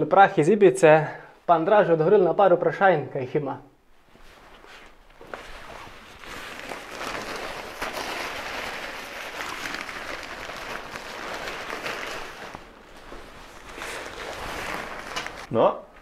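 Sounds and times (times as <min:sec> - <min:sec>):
fabric car cover rustling: 0:03.9 - 0:15.5.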